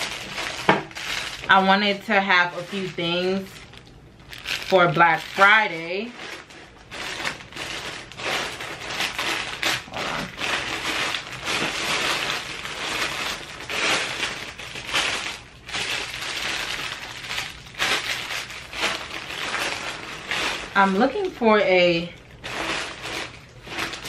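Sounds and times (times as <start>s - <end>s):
plastic bags crinkling: 0.0s - 24.0s.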